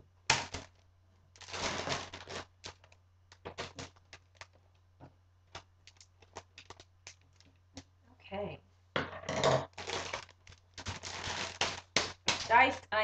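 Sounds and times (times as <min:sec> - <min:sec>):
plastic freezer bag crinkling: 0:00.3 - 0:04.6, 0:05.5 - 0:07.5, 0:09.7 - 0:12.8.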